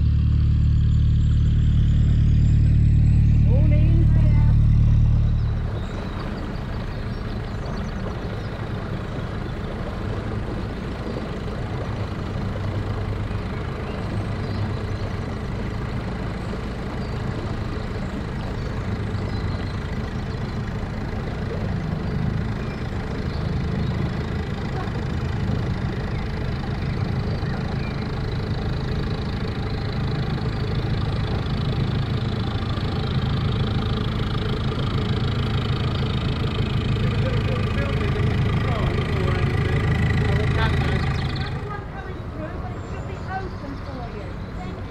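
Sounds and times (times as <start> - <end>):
diesel boat engine throbbing: 0.0 - 44.9.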